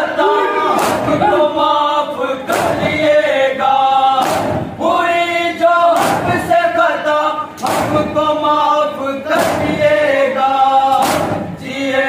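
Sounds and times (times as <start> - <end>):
men chanting in unison: 0.0 - 12.0
chest-beating strikes: 0.1 - 1.7.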